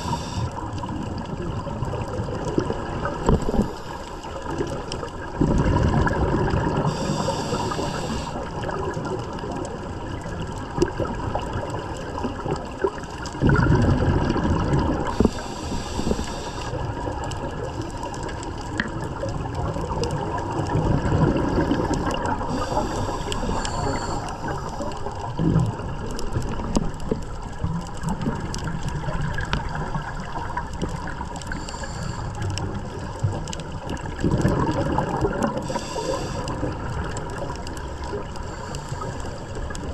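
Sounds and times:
regulator inhalation hiss: 0.0s - 0.6s, 3.4s - 4.4s, 6.8s - 8.5s, 15.1s - 16.8s, 22.4s - 24.9s, 31.5s - 32.4s, 35.6s - 36.7s
faint steady hum: 0.0s - 1.9s, 2.6s - 8.8s, 14.6s - 17.3s, 20.3s - 27.4s, 29.0s - 33.2s, 34.7s - 39.9s
gurgling exhaled bubbles: 0.0s - 39.9s.

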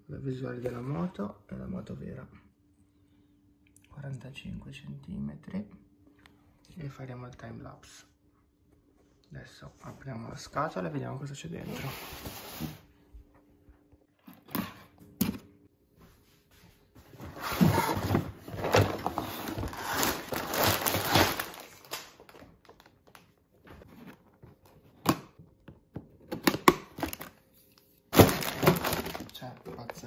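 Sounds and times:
plastic bags crinkling: 18.4s - 23.3s, 27.0s - 27.4s, 28.1s - 30.0s.

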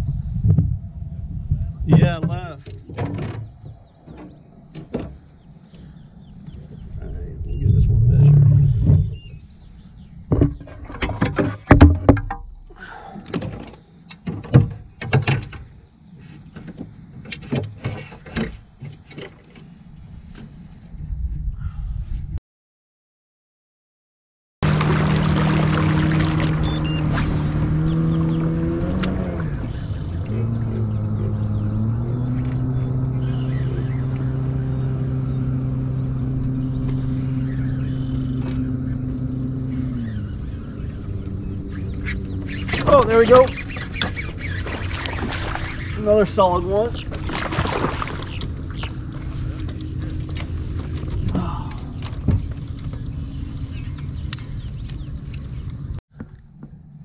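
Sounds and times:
low rumble: 0.0s - 2.6s, 3.4s - 10.4s
fish and plastic board clattering: 10.3s - 12.5s, 47.0s - 53.0s
electric trolling motor humming: 24.6s - 57.0s.

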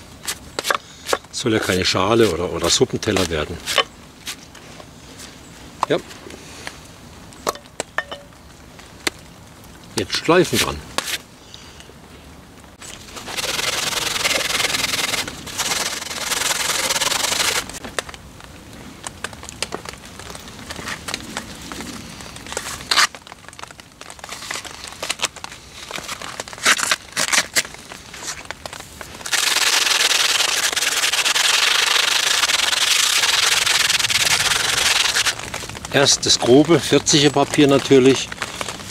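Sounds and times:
sandpaper scratching on wood: 13.2s - 17.7s, 29.3s - 35.4s.

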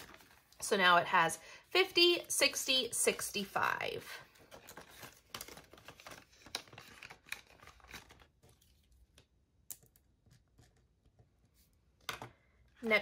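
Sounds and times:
banknotes rustling and flicking: 2.2s - 9.2s.

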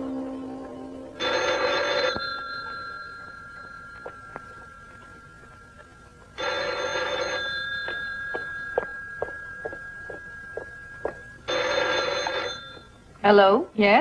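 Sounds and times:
telephone bell ringing: 1.2s - 13.1s
footsteps on a hard floor: 2.0s - 11.3s.

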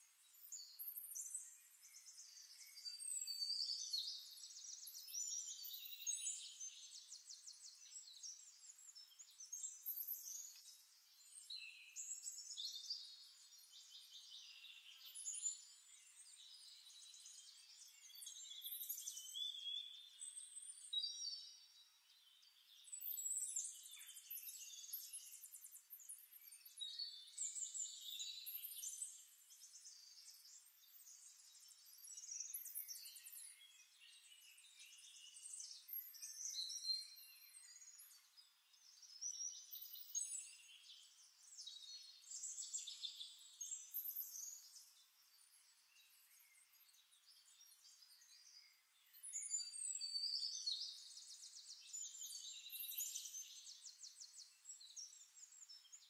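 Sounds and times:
birdsong chirps and trills: 0.0s - 56.0s.

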